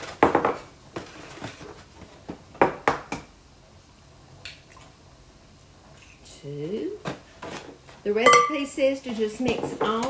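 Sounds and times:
eggs tapping on a glass bowl: 8.3s - 8.7s.

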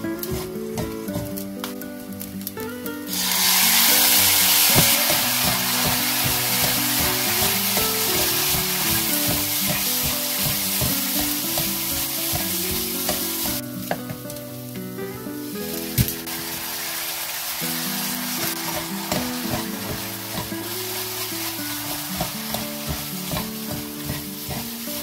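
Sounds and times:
sauce sizzling in hot pan: 0.0s - 25.0s
wooden spatula knocking pan: 0.2s - 1.4s, 3.7s - 14.3s, 18.5s - 25.0s.

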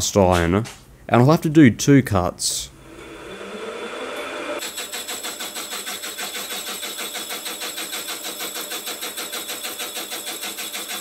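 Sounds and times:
milling saw cutting cast iron: 2.8s - 11.0s.

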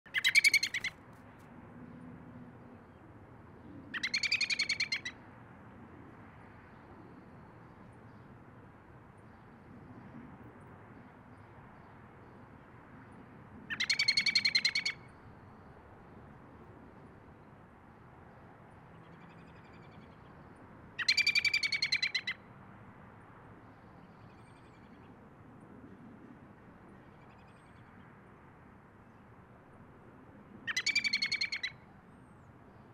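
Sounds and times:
robin calling fast repeated notes: 0.1s - 0.9s, 4.0s - 5.1s, 21.0s - 22.4s, 30.7s - 31.7s.

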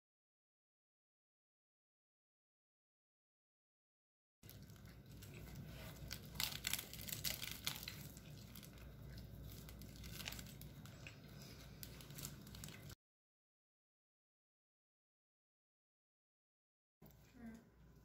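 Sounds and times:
low steady hum: 4.4s - 13.0s, 17.0s - 18.0s
plastic wrapper crinkling and tearing: 4.5s - 13.0s.

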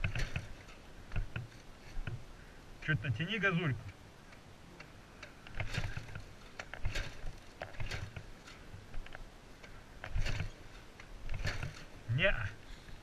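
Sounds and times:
motorcycle engine cranking: 0.0s - 2.2s, 5.2s - 12.0s.

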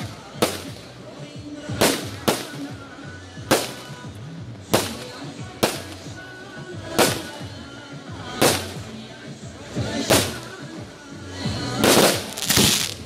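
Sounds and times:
firework shells bursting: 11.8s - 13.0s.

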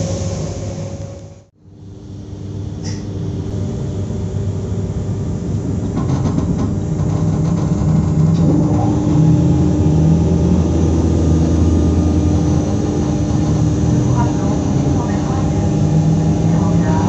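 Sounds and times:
electric train humming: 0.0s - 17.0s.

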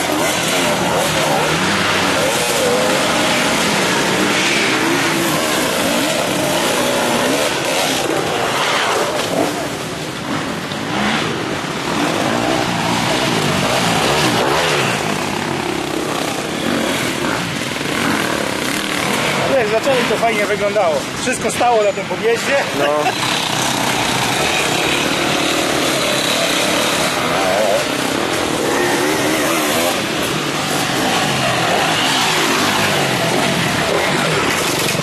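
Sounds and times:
dirt bike engines revving: 0.0s - 35.0s.

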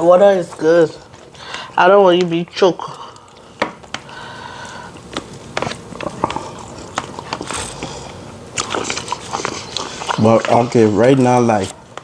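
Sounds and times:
chewing: 4.7s - 12.0s.

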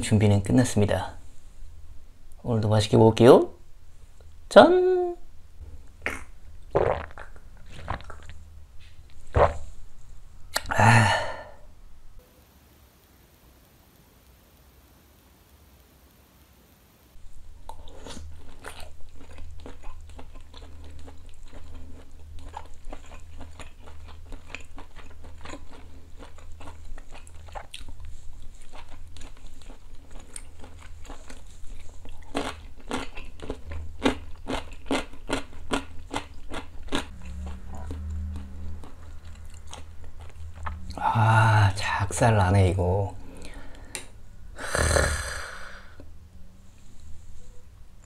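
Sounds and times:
person chewing and biting food: 6.0s - 9.8s, 17.3s - 41.0s.

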